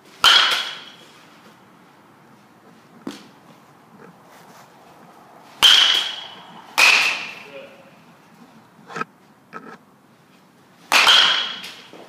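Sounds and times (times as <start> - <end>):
bat hitting ball ringing: 0.2 - 1.1, 5.6 - 7.8, 10.9 - 12.0.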